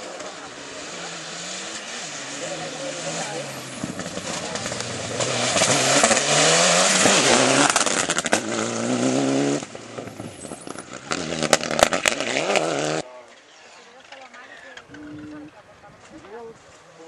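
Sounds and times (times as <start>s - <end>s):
rally car engine at high revs: 0.0s - 13.1s.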